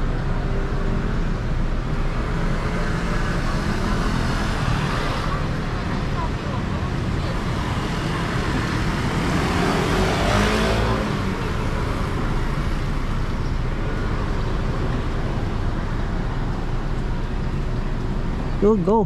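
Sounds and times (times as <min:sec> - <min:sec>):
road traffic rumble: 0:00.0 - 0:19.0
vehicle passing: 0:02.2 - 0:13.0.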